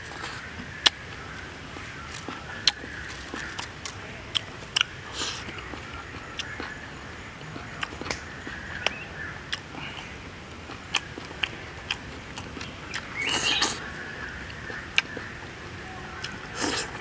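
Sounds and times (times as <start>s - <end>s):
chewing: 0.0s - 17.0s
rising bird call: 13.1s - 14.2s.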